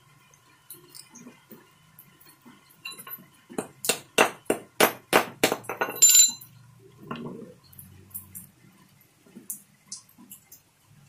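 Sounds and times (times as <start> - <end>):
short metallic ring: 5.8 - 6.5.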